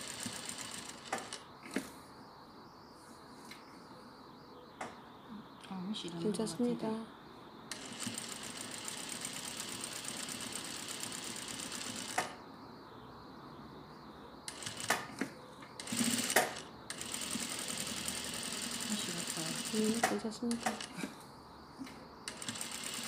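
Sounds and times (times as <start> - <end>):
sewing machine stitching: 15.8 - 20.9, 22.3 - 23.0.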